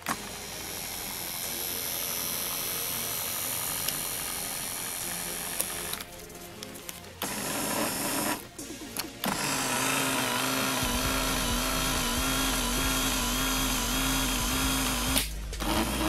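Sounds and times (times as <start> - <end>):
power seat motor whine: 9.2 - 16.0.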